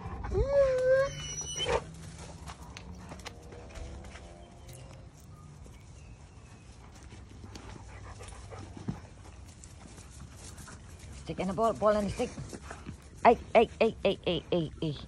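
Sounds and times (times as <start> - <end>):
dog whining: 0.0 - 1.9.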